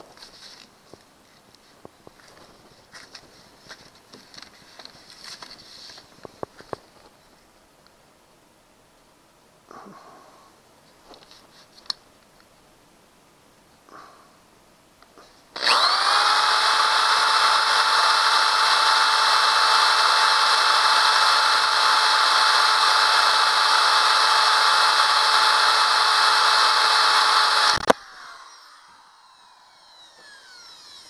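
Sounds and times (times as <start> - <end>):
power drill whining: 15.6 - 31.0.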